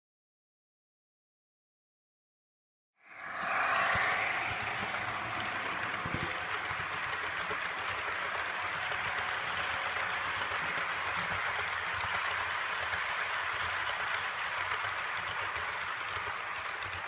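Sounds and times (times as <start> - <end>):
model train rattling on track: 4.1 - 17.0.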